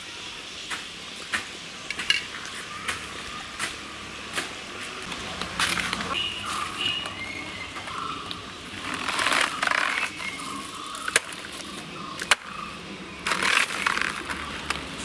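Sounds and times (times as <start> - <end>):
tearing and rustling: 13.2 - 15.0.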